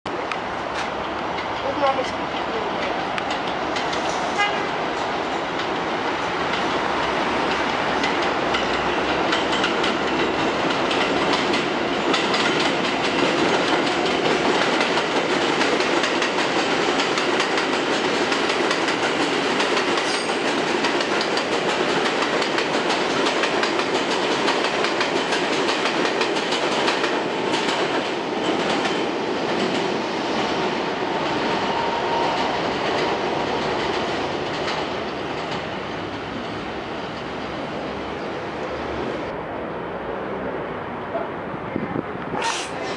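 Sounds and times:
subway train passing at speed: 0.1s - 42.9s
wheels clattering over rail joints: 5.0s - 29.9s.

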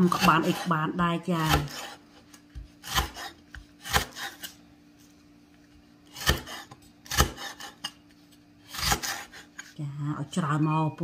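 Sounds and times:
cleaver chopping stalks on board: 1.4s - 4.4s, 6.2s - 7.6s.

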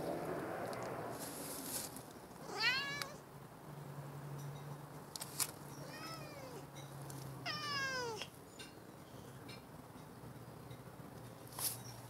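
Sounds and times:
cat meowing: 2.4s - 3.2s, 5.8s - 6.7s, 7.4s - 8.3s.

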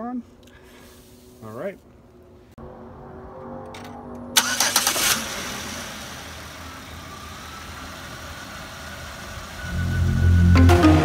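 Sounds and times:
car engine idling: 4.4s - 11.0s.

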